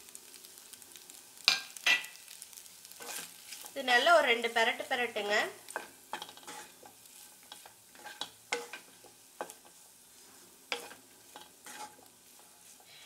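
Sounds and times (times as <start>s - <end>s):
faint frying sizzle: 0.0s - 13.0s
wooden spatula scraping pan: 2.9s - 4.0s, 5.1s - 13.0s.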